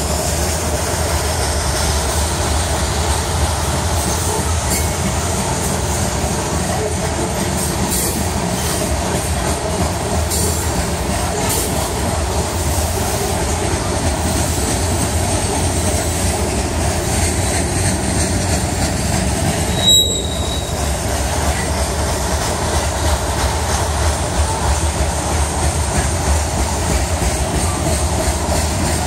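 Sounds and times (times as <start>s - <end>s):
train wheels rumbling on rails: 0.0s - 29.0s
high-pitched wheel squeal: 19.6s - 20.9s.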